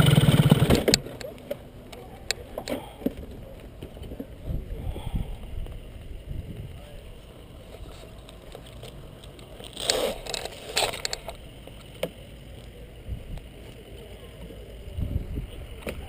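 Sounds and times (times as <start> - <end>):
gear rustling and clattering: 7.6 - 11.8.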